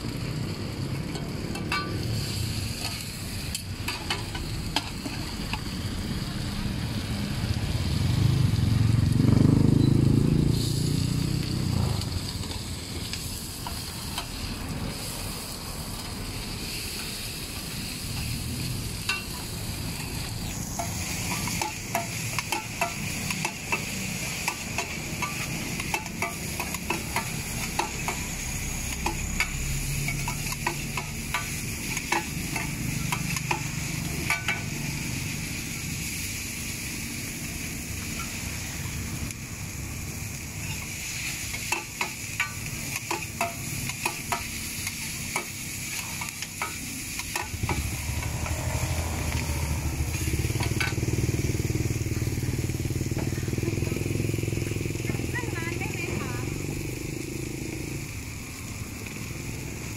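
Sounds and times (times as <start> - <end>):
food sizzling in a wok: 0.0 - 59.9
metal spatulas scraping a wok: 19.0 - 35.0, 40.6 - 49.4
low rumble: 47.5 - 52.4.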